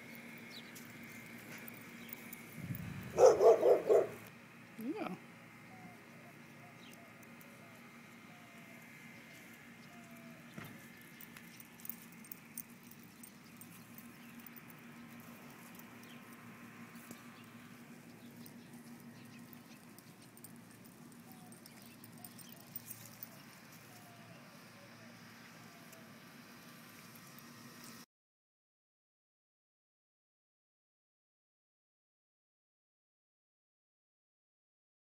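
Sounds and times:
faint background hum: 0.0 - 28.0
puppy paws pattering on concrete: 10.5 - 24.2.

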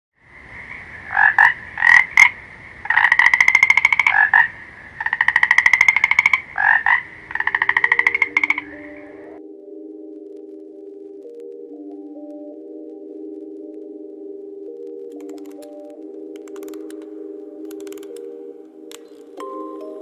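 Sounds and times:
frog croaking and trilling: 0.2 - 9.5
soft low music tones: 6.9 - 20.0.

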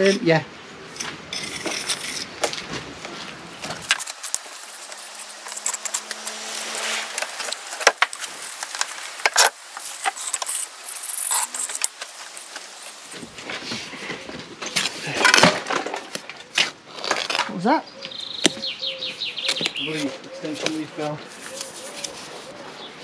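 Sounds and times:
trowel scraping mortar: 0.9 - 2.6, 3.4 - 14.0.

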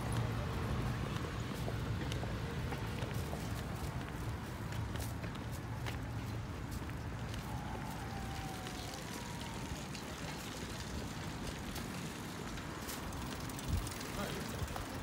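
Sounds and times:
low rumble of traffic: 0.0 - 15.0.

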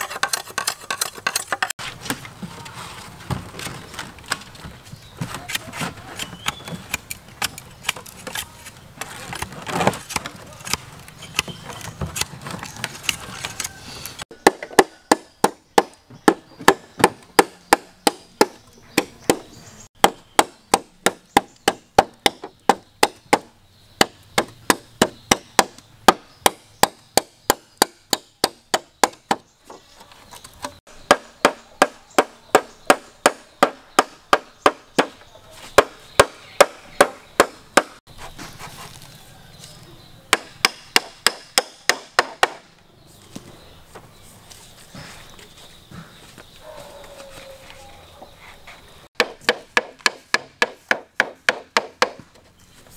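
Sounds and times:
blade chopping bamboo: 14.3 - 29.4.

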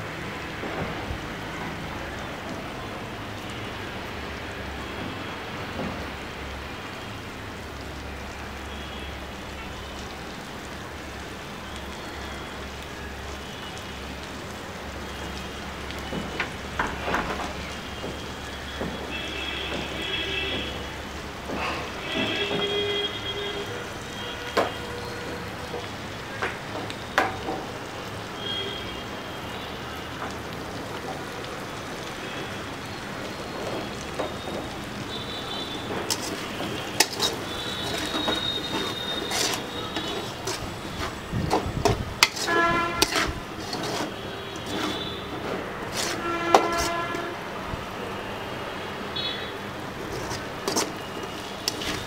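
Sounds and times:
oil sizzling: 0.0 - 52.0
metal spatula scraping a wok: 35.9 - 47.4, 50.0 - 52.0.

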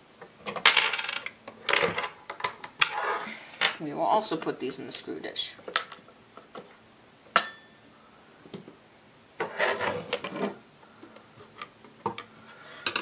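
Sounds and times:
small parts clinking and clattering: 0.5 - 3.0.

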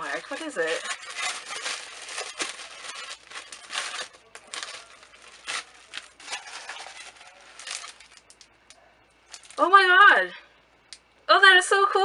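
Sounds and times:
wrapping paper crinkling: 0.0 - 8.5, 9.3 - 9.6.

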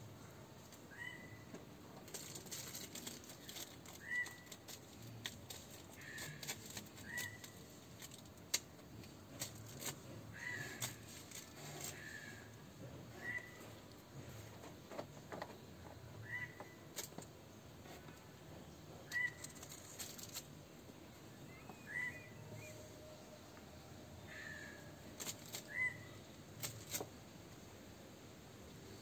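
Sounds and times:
plastic bag crinkling: 2.0 - 12.0.

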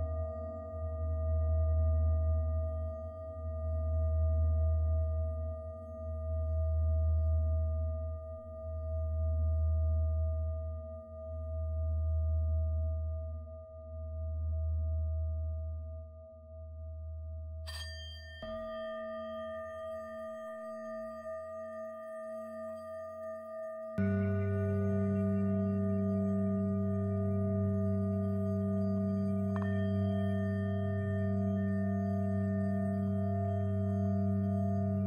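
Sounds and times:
singing bowls ringing: 17.7 - 35.0
low drone: 24.0 - 35.0.

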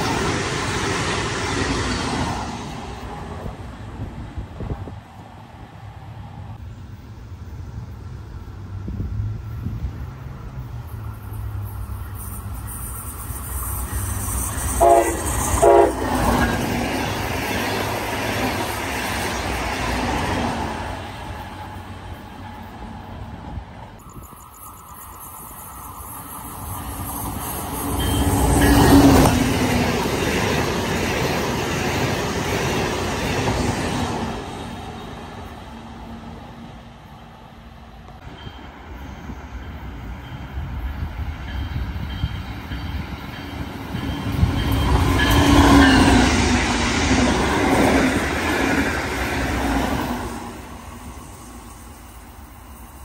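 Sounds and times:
trains passing at speed: 0.0 - 53.0
crossing bell ringing: 24.0 - 29.3, 38.2 - 46.3.

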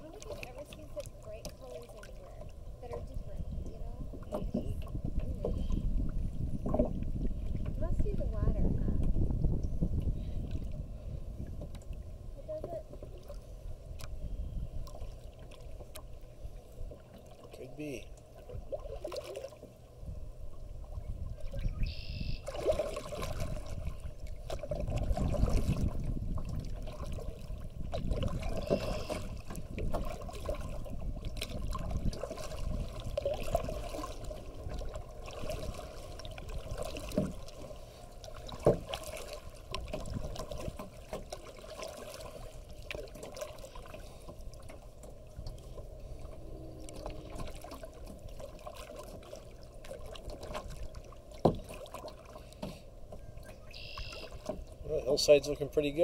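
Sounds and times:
paddle dipping and dripping: 0.0 - 56.0
water lapping on plastic hull: 0.0 - 56.0
low rumble: 45.3 - 48.0.

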